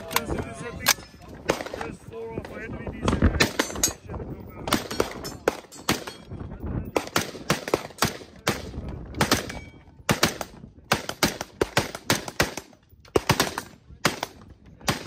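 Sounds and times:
rifle firing quick shots: 0:06.9 - 0:15.0.

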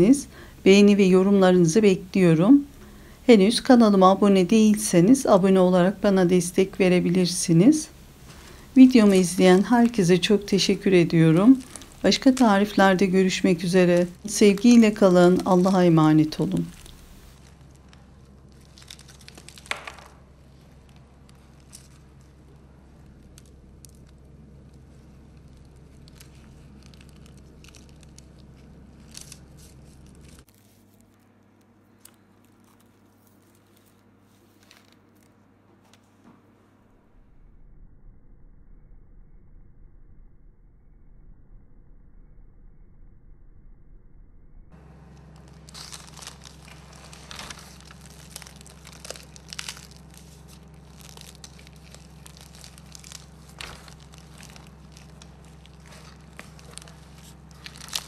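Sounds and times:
pastry crust crackling: 0:00.0 - 0:35.6, 0:44.8 - 0:58.0
low steady hum: 0:00.0 - 0:58.0
pastry crunch: 0:07.8 - 0:35.6, 0:44.8 - 0:58.0.

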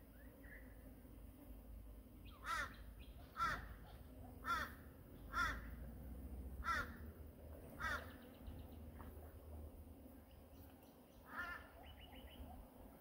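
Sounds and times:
crow cawing: 0:02.4 - 0:03.7, 0:04.4 - 0:05.7, 0:06.6 - 0:07.0, 0:07.8 - 0:08.2, 0:11.2 - 0:11.8.

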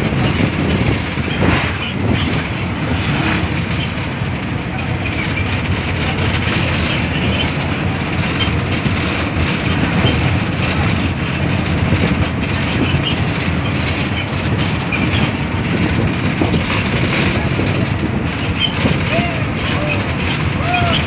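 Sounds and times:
rushing air: 0:00.0 - 0:20.6
tyre and engine rumble: 0:00.0 - 0:21.0.

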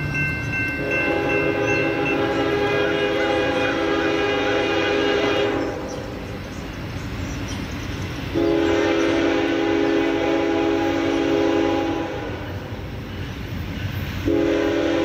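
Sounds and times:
multi-chime train horn blasts: 0:00.0 - 0:06.0, 0:08.3 - 0:12.8, 0:14.2 - 0:15.0.

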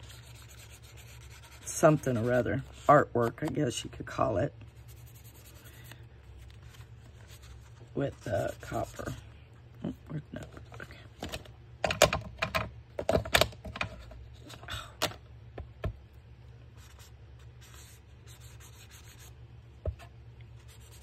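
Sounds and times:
paper scraping and rubbing: 0:00.0 - 0:04.0, 0:04.8 - 0:09.2.

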